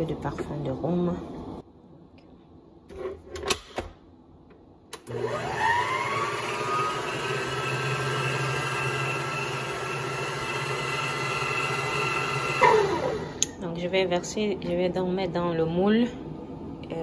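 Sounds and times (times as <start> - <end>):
stand mixer motor whining: 5.0 - 13.5.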